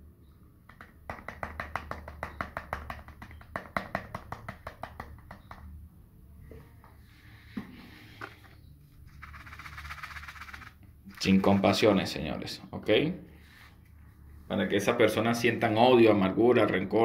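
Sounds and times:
pepper bottle shaking taps: 0.7 - 5.7, 9.1 - 11.8.

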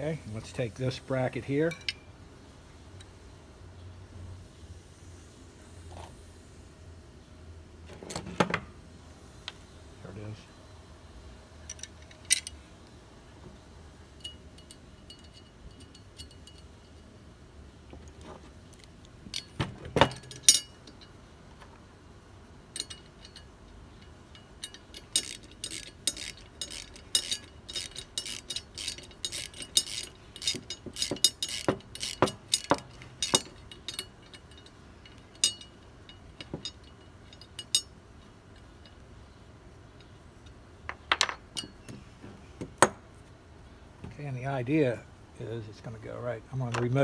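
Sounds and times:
metal tools clinking: 1.6 - 2.1, 14.2 - 17.1, 18.0 - 21.2, 22.7 - 39.4
socket ratchet clicking: 22.8 - 35.7.

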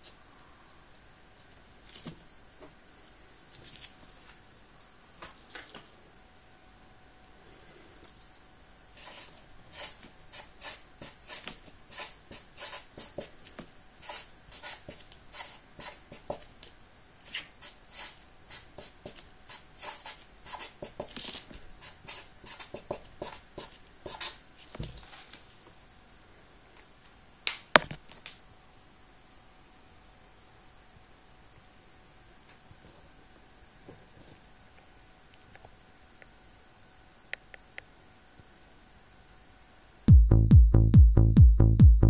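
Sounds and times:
marker scratching on paper: 9.0 - 13.4, 14.0 - 16.4, 17.4 - 21.1, 21.8 - 24.4.

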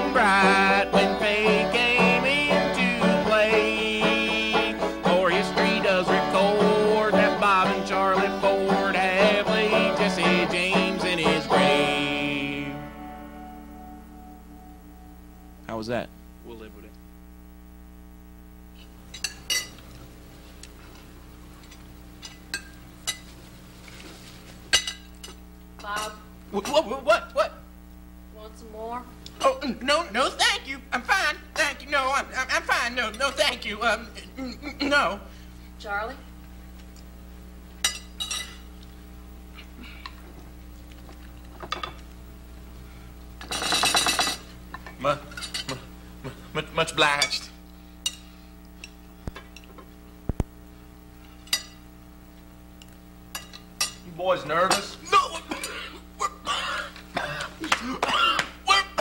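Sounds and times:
steady low hum: 0.0 - 59.0
cutlery clinking on plates: 37.8 - 38.6, 43.4 - 44.5.

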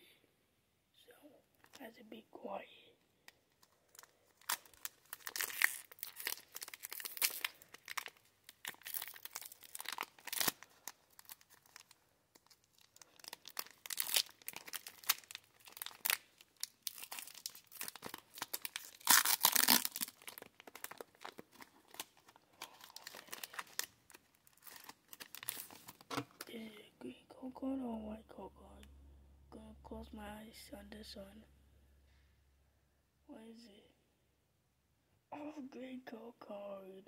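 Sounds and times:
foil wrapper crinkling and tearing: 3.5 - 26.5.

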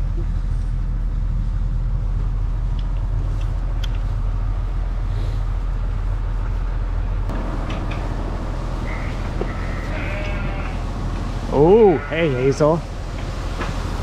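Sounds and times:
low machine hum: 0.0 - 14.0
broad noise: 7.3 - 14.0.

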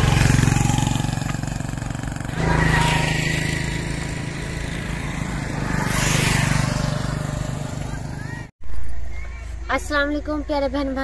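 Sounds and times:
motorcycle engine running: 0.0 - 8.5.

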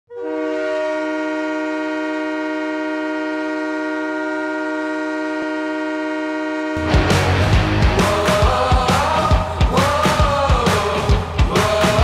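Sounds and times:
hockey goal horn blowing: 0.1 - 7.3.

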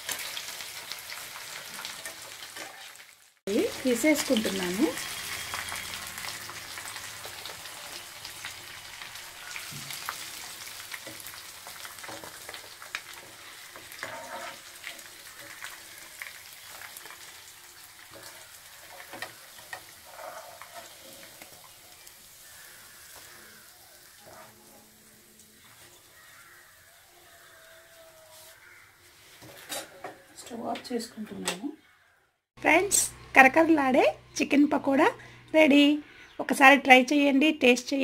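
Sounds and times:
hot oil sizzling: 0.0 - 29.9.

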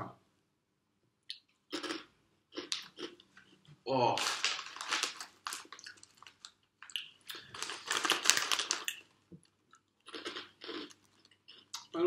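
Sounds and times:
crisps being crunched: 4.0 - 9.2, 10.0 - 11.9
crisp packet crinkling: 4.1 - 9.2.

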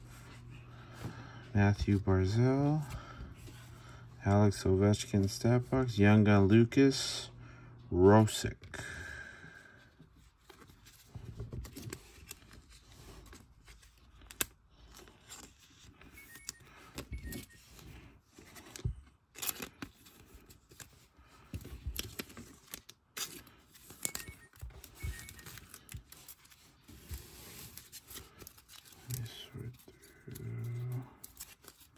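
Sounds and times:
cards sliding and shuffling: 10.2 - 31.9.

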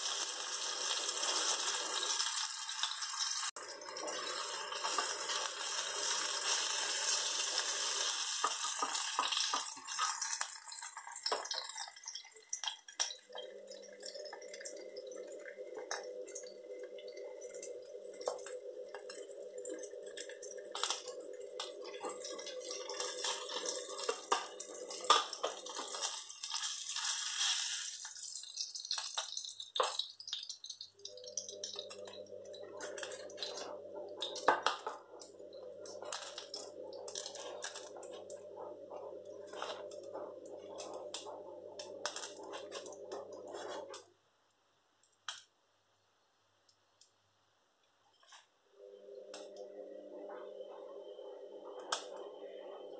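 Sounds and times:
hot oil sizzling: 0.0 - 44.0
utensils scraping frying pan: 25.1 - 28.1, 42.1 - 44.0.

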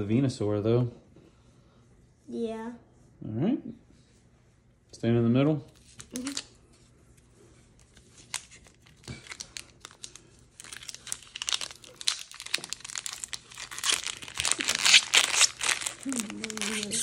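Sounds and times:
foil wrapper crinkling and tearing: 5.7 - 6.6, 7.8 - 17.0.

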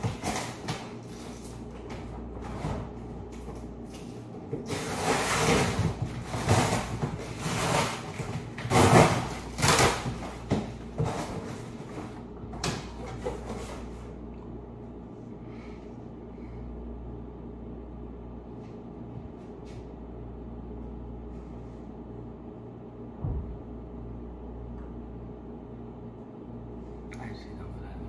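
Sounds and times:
kitchen items rustling and clattering: 0.0 - 14.2.

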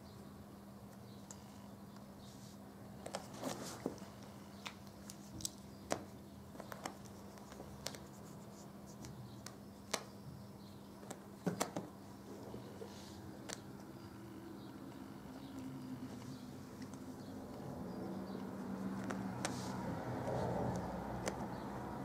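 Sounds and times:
cat claws scratching rug: 4.8 - 10.1, 16.1 - 21.9.

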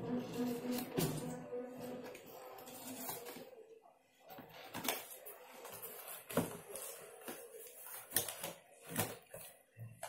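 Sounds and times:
cardboard rustling and scraping: 2.0 - 3.5, 4.3 - 10.0.

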